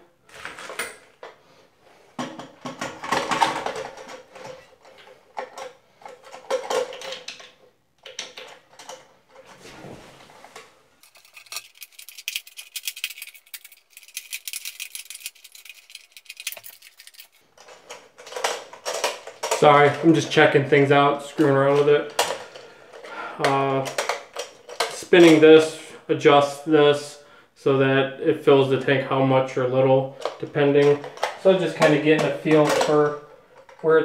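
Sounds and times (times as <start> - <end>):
plastic valve clicking and rattling: 11.0 - 19.7.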